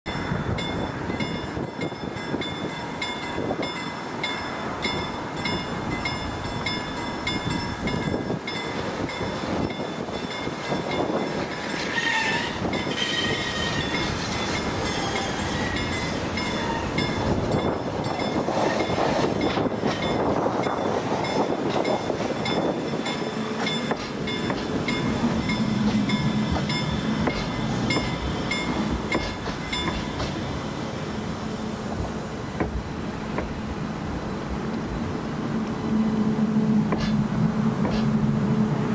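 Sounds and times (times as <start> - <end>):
tram wheels on rails: 0.1 - 38.9
wheel squeal: 11.7 - 17.3.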